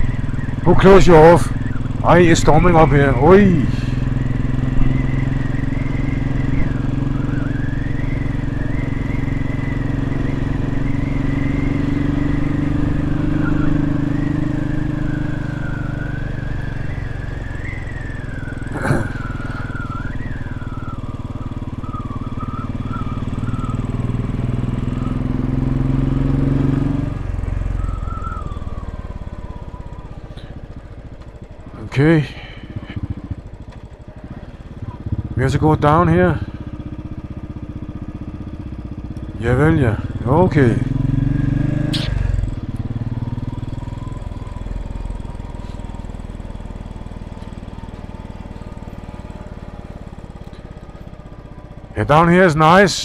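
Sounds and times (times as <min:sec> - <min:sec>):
motorcycle engine running: 0:00.0 - 0:53.0
sharp click: 0:41.8 - 0:42.3.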